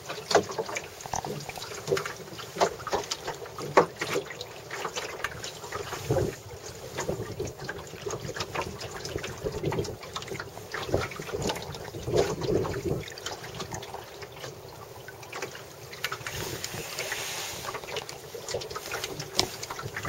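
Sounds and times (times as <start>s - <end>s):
water splashing against hull: 0.0s - 20.0s
wind buffeting microphone: 5.8s - 13.2s, 18.6s - 20.0s.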